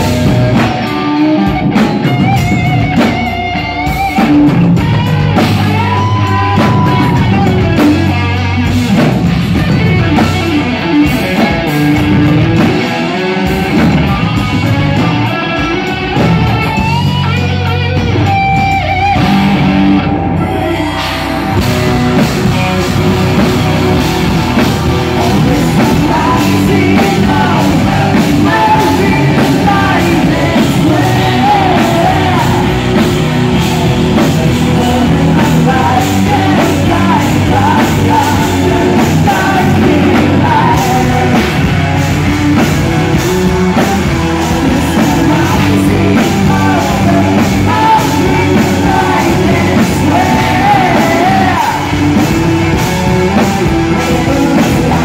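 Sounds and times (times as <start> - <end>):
bass: 0.0 - 55.0
drums: 0.0 - 55.0
electric guitar: 0.0 - 55.0
woman singing: 25.2 - 32.9.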